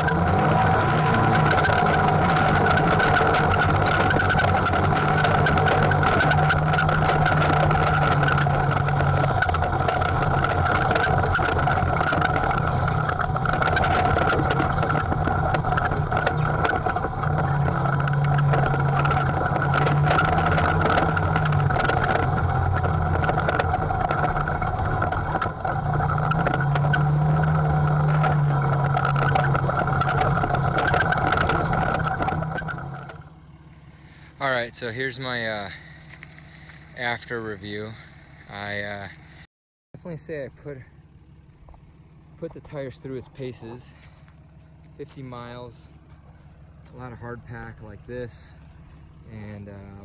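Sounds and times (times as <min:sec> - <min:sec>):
vehicle engine droning: 0:00.0 - 0:50.0
small clicks and knocks: 0:01.1 - 0:33.3.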